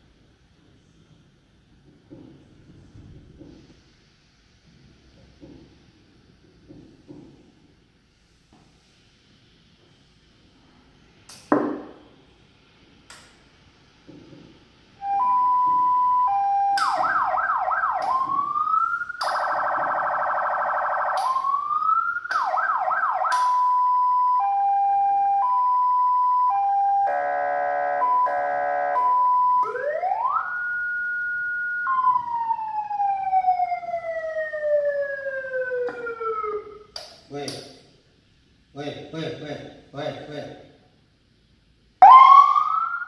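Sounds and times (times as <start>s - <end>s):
electronic emergency siren: 15.0s - 37.0s, 42.0s - 43.0s.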